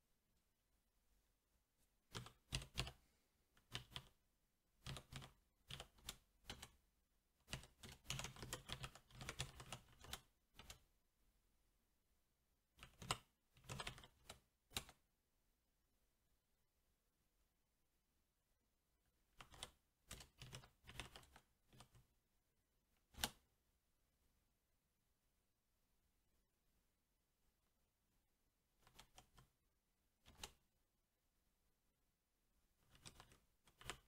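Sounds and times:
mechanical keyboard typing: 2.1s - 3.0s, 3.6s - 4.2s, 4.8s - 6.8s, 7.4s - 10.9s, 12.8s - 15.0s, 19.3s - 22.0s, 28.8s - 29.5s, 30.2s - 30.6s, 32.8s - 34.0s.

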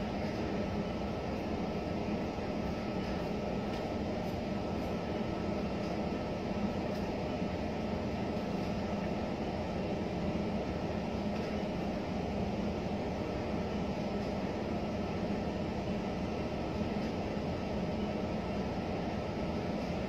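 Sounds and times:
steady mechanical drone: 0.0s - 20.0s.

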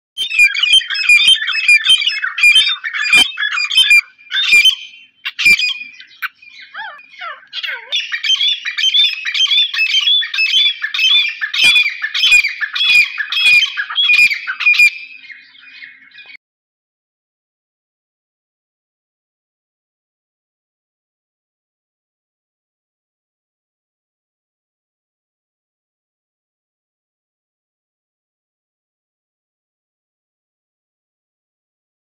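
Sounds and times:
francolins calling shrilly: 0.2s - 16.4s.

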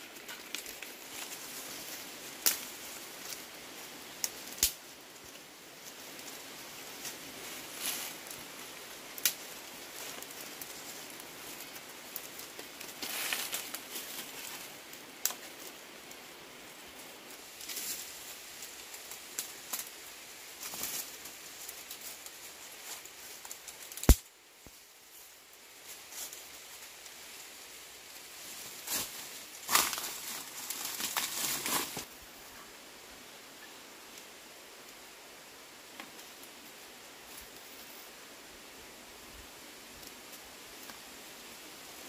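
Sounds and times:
dry twigs and leaves rustling: 0.0s - 32.2s
brittle twigs snapping: 0.2s - 1.4s, 2.4s - 3.4s, 4.2s - 4.8s, 9.1s - 9.4s, 23.4s - 24.2s, 28.9s - 32.0s.

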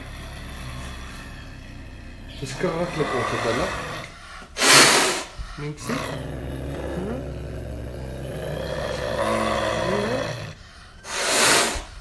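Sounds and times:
wild cat growling and yowling: 0.0s - 4.1s, 5.8s - 10.6s.

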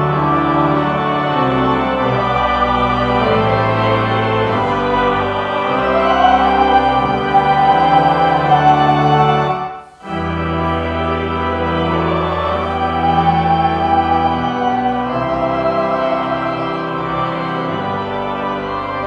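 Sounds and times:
pipe organ chords: 0.0s - 19.0s.

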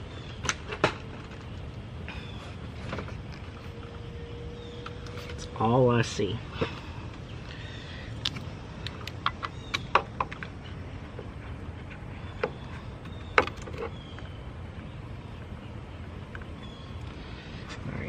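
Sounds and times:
low steady rumble: 0.0s - 18.0s
engine parts clicking: 6.6s - 11.3s.

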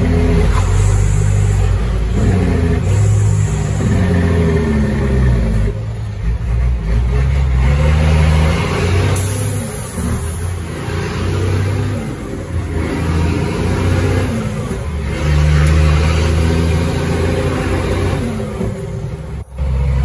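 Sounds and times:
diesel truck engine pulling hard: 0.0s - 20.0s.

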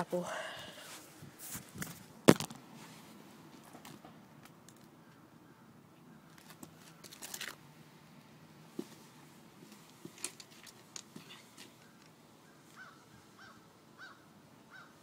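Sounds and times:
faint crunching and scraping: 0.3s - 4.9s, 6.3s - 7.6s, 8.7s - 12.9s.

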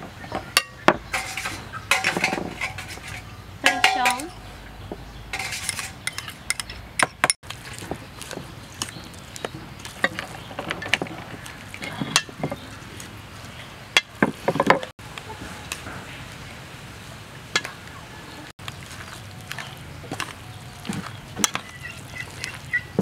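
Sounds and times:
metal spoon scraping steel bowl: 0.7s - 4.4s, 5.3s - 6.8s.

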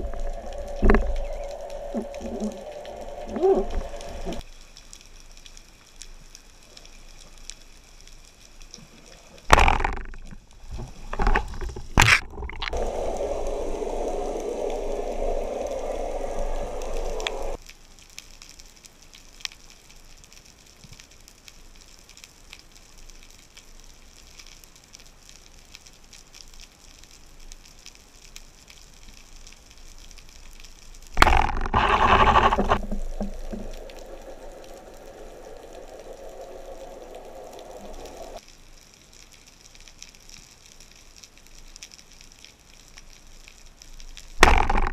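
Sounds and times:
steady hum: 0.0s - 4.4s, 12.8s - 17.6s, 31.2s - 38.4s
underwater low hiss: 0.0s - 7.8s, 12.6s - 17.6s, 30.8s - 38.4s.

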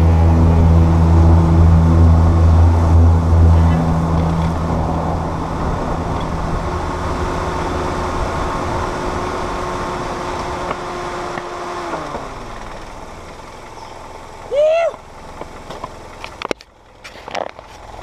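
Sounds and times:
faint pitched whine: 0.0s - 10.7s
wind on microphone: 0.0s - 11.0s.

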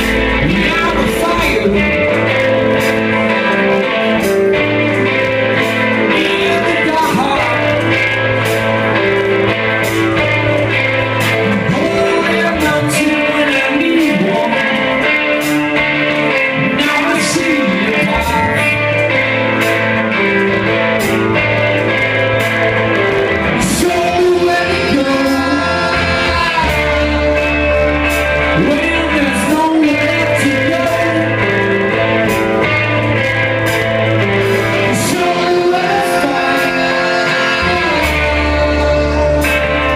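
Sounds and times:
bass line: 0.0s - 39.9s
electric guitars: 0.0s - 39.9s
lead vocal singing: 5.9s - 8.7s, 11.1s - 15.2s, 16.2s - 19.5s, 23.3s - 32.6s, 34.2s - 39.9s.

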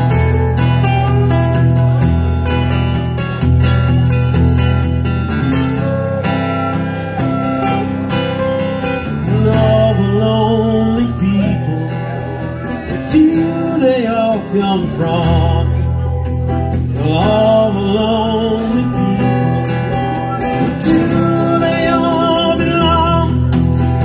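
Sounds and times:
strummed acoustic guitars: 0.0s - 24.0s
flute melody wavering in pitch: 5.4s - 13.1s.

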